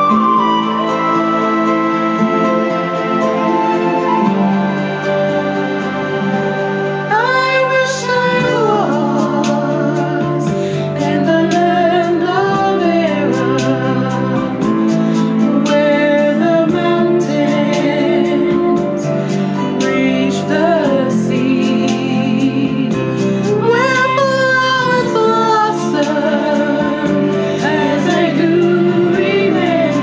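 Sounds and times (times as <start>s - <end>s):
instrumental backing music: 0.0s - 30.0s
woman singing with vibrato: 7.1s - 30.0s.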